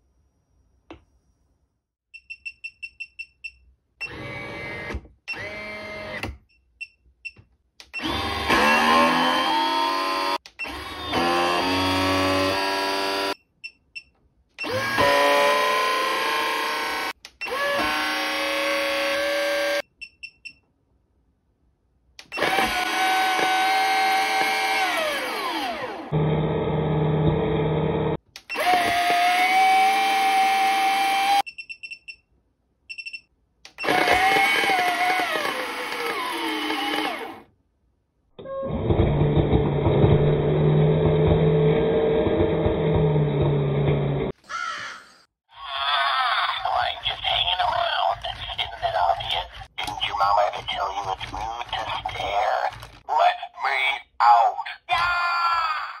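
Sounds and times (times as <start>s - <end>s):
toy speaker spooky sound effects: 44.5s - 56.0s.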